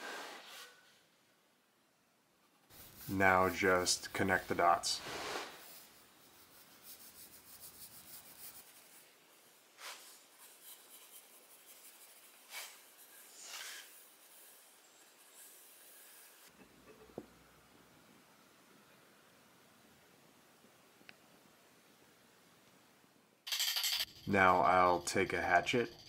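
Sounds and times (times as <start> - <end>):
faint pencil scratching on wood: 2.7 - 16.5.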